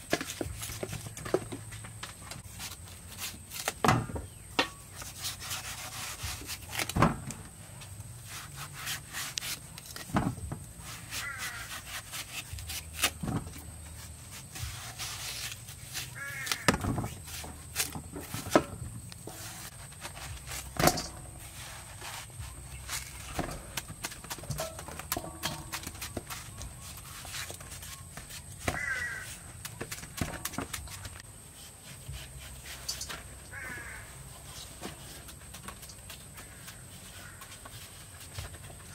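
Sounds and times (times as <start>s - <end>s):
knife rasping through watermelon: 5.0s - 6.9s, 8.2s - 10.0s, 10.8s - 13.2s, 13.9s - 18.0s.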